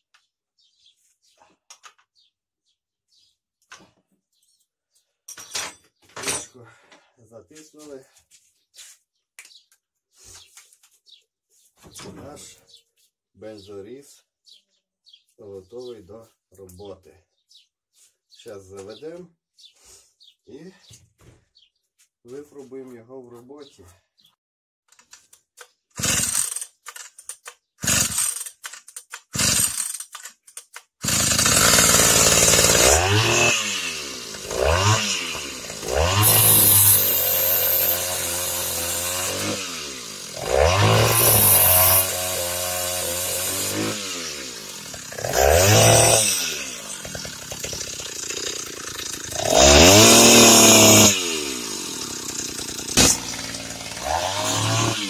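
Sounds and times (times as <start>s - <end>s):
chainsaw engine sputtering and revving: 26.0s - 26.6s, 27.8s - 28.5s, 29.4s - 30.0s, 31.0s - 55.0s.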